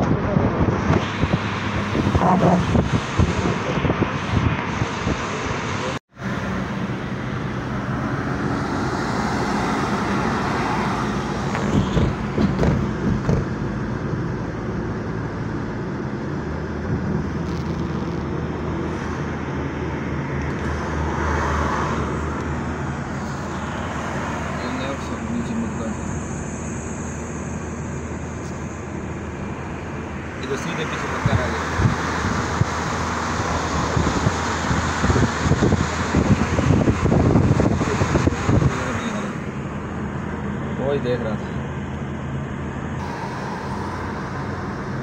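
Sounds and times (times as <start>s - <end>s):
car road noise from inside: 0.0s - 45.0s
low drone: 42.6s - 45.0s.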